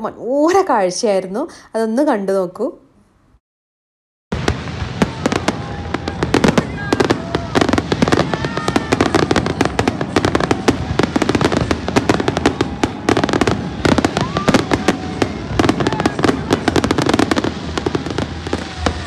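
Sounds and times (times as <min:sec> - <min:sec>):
fireworks bangs and crackling: 0:04.3 - 0:19.0.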